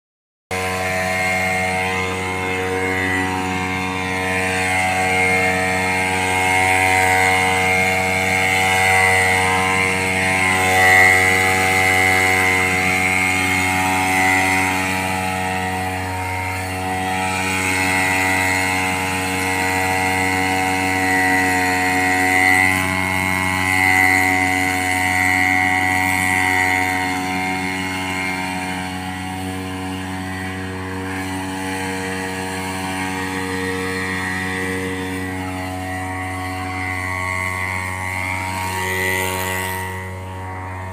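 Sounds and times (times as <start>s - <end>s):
power sprayer engine running: 0.5s - 40.9s.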